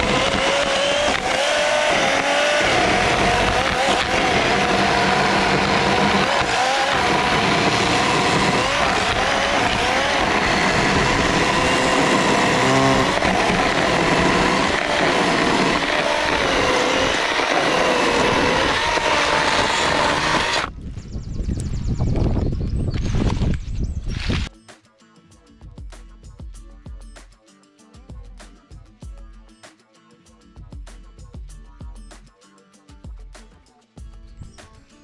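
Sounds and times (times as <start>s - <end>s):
electric chainsaw whine: 0.0s - 20.8s.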